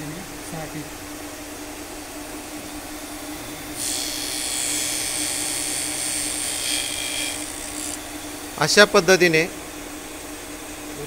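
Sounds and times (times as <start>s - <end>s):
grinder spindle humming: 2.6s - 9.5s
high hissing grinding: 2.8s - 9.5s.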